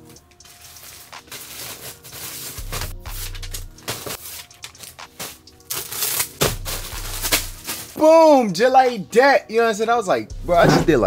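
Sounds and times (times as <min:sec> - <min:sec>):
background music with deep bass: 0:00.0 - 0:08.5, 0:10.2 - 0:11.0
plastic mailer bags crinkling: 0:00.4 - 0:08.0.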